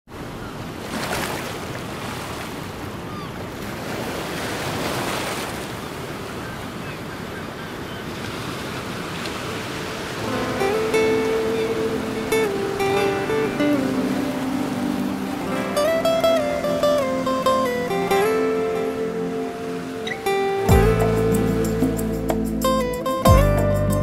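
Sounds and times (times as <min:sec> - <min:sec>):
ocean surf: 0:00.1 - 0:24.0
acoustic guitar music: 0:10.2 - 0:24.0.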